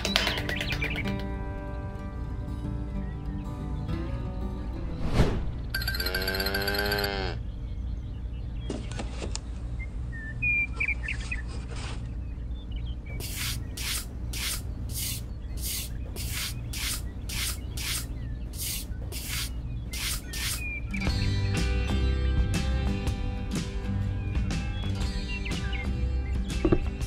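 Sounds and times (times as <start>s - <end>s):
metal trowel scraping sand: 13.2s - 20.7s.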